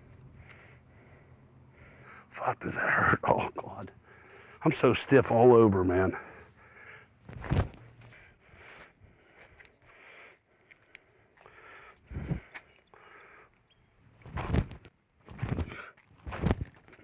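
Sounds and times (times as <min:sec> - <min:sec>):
footsteps on concrete: 0:14.2 - 0:17.0.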